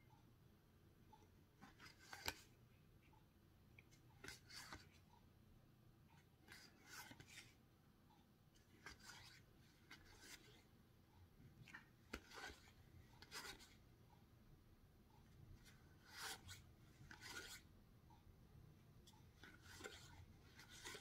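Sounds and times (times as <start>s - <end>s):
playing cards swishing: 19.4s - 21.0s.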